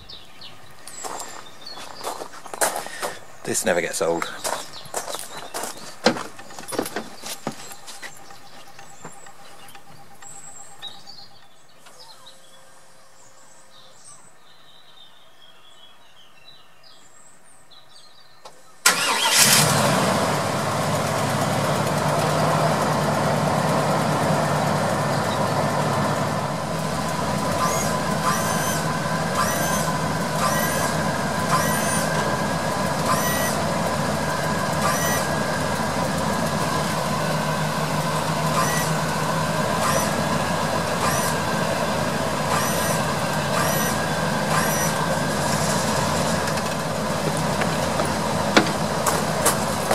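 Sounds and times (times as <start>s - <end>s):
motor whining: 18.9s - 49.9s.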